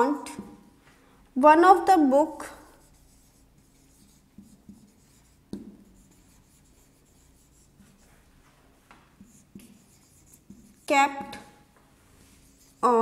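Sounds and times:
marker pen writing on whiteboard: 0.2 - 0.7, 2.4 - 11.6, 12.2 - 13.0
pen tip tapping board: 5.5 - 5.8.

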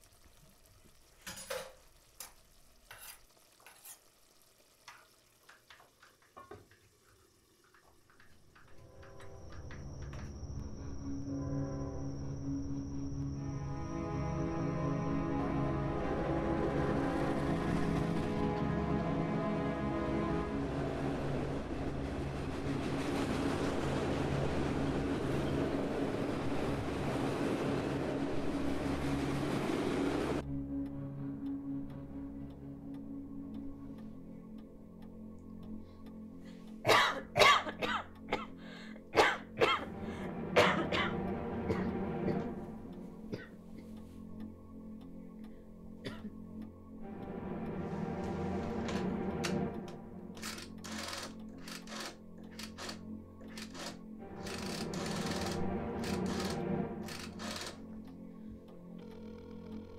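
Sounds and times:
utensils clinking against pots: 1.2 - 1.8
freight train rolling past: 8.6 - 30.4
low droning music note: 8.8 - 36.8, 39.9 - 50.9.

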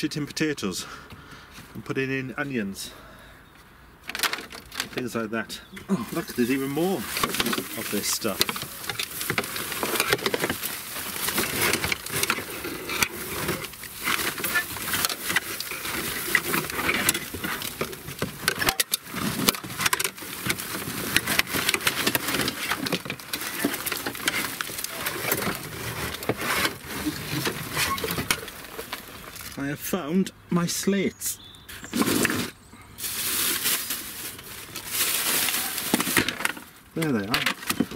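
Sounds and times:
plastic netting and bags rustling: 4.1 - 29.7, 31.7 - 37.9.

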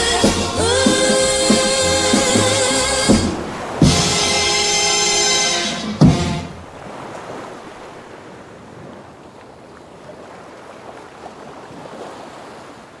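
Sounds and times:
sea surf rushing: 0.0 - 9.1.

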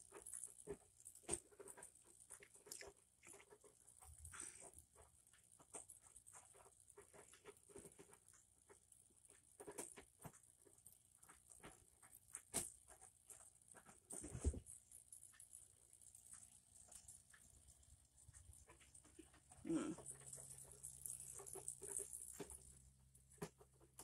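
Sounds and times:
cat lapping water: 0.2 - 8.5.

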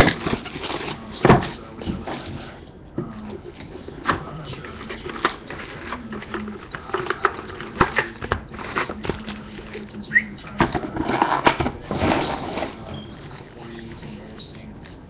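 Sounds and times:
packaging crinkling rustle: 0.0 - 2.3, 3.7 - 10.1.

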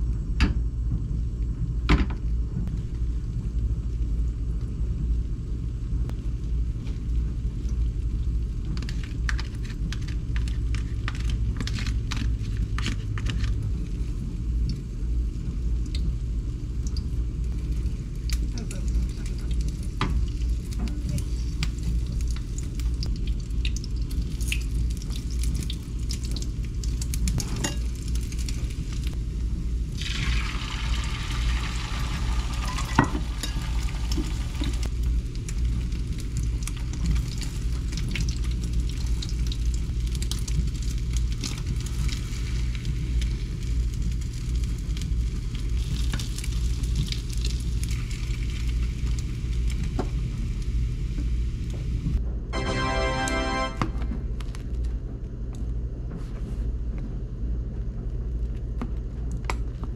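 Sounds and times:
egg sizzling in a pan: 15.7 - 51.7.

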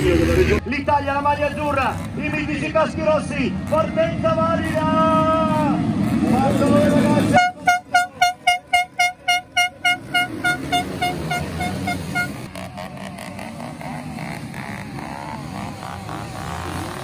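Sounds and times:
horn short toots: 7.3 - 12.5.

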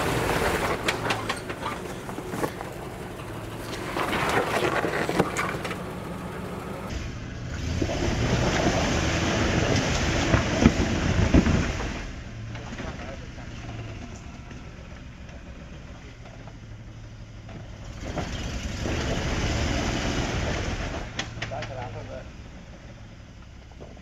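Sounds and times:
rocks clicking under tyres: 0.0 - 6.9, 7.6 - 16.7
engine running at low revs: 0.0 - 24.0.

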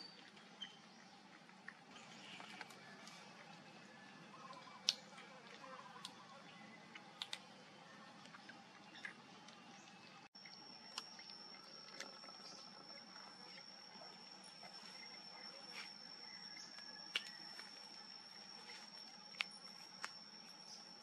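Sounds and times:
insect trill: 10.4 - 21.0.

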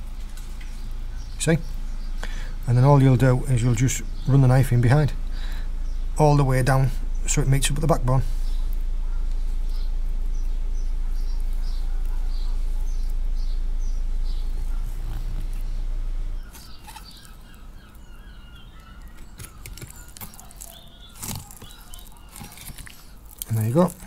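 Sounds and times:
small bird chirping: 0.0 - 24.0
faint clicks and scrapes: 19.0 - 24.0.

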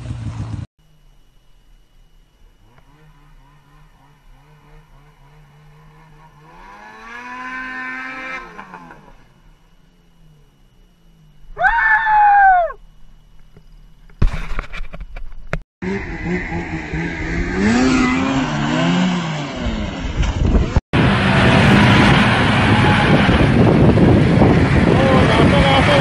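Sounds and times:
snowmobile engine running loudly: 0.0 - 0.7, 2.4 - 10.7, 15.8 - 26.0
snowmobile engine revving: 2.5 - 12.7, 15.8 - 26.0
person screaming: 11.6 - 12.8.

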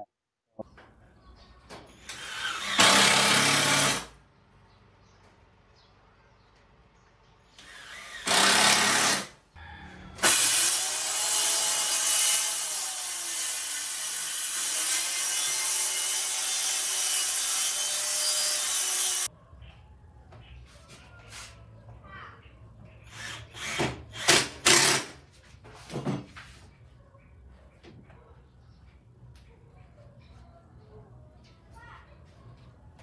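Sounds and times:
power tool cutting plywood: 7.6 - 9.3, 10.2 - 19.3.

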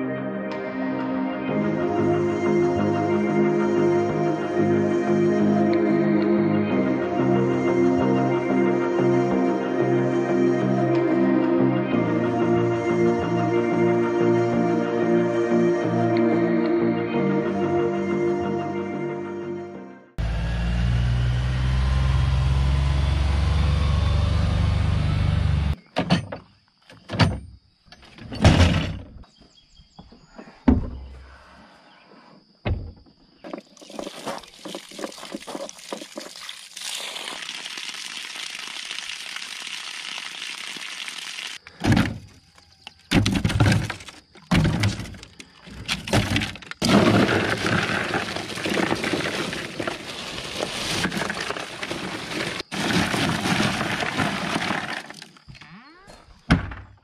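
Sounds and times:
knocks and thuds: 32.6 - 33.6, 41.8 - 42.3, 43.1 - 45.2, 56.3 - 57.0
water running onto gravel: 33.6 - 41.6, 46.8 - 55.4
ice cubes clattering: 46.0 - 55.5.

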